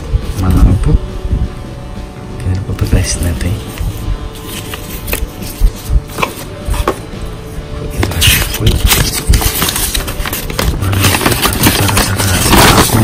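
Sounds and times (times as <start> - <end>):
background music: 0.0 - 13.0
paper rustling: 3.6 - 7.0, 7.9 - 13.0.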